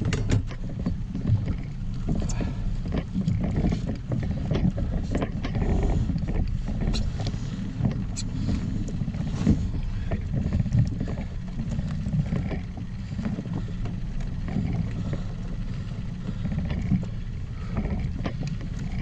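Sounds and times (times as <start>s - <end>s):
knocks against boat: 0.0s - 8.5s
low rumble: 0.0s - 19.0s.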